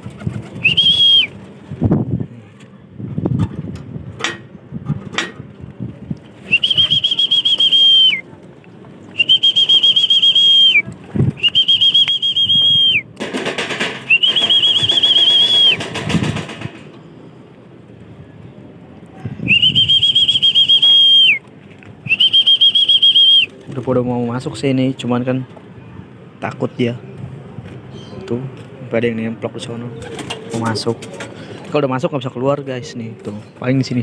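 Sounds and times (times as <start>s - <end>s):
trilling pigeon-calling whistle: 0.5s - 1.4s, 6.4s - 8.2s, 9.1s - 13.1s, 14.0s - 16.2s, 19.4s - 21.4s, 22.0s - 23.6s.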